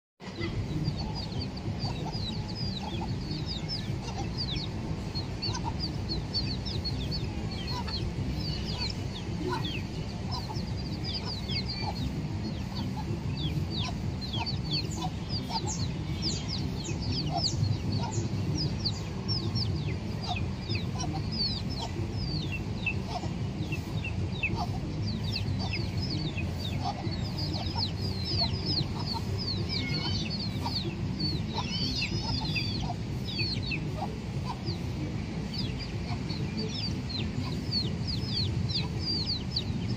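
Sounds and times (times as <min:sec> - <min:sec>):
chicks peeping: 0:00.2 - 0:39.9
hen clucking low: 0:00.2 - 0:39.9
low background rumble: 0:00.2 - 0:39.9.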